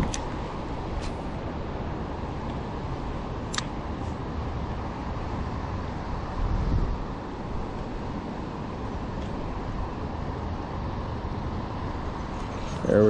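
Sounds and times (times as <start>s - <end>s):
wind on microphone: 6.3s - 10.2s.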